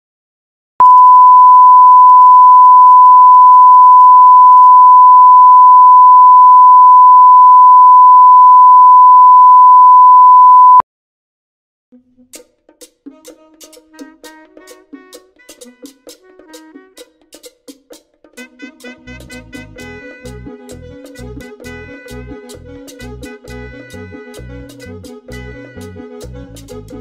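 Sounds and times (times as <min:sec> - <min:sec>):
steady pure test tone: 0:00.8 - 0:10.8.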